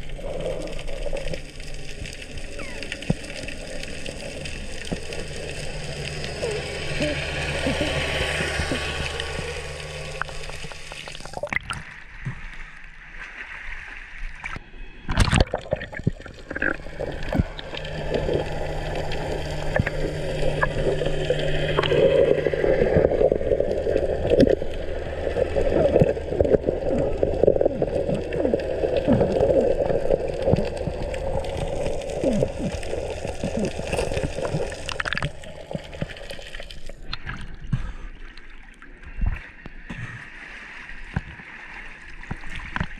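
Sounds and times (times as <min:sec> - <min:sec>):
small clicks and crackles: 0:00.0 - 0:12.5, 0:15.9 - 0:37.5
water gurgling underwater: 0:00.0 - 0:12.5, 0:14.3 - 0:42.9.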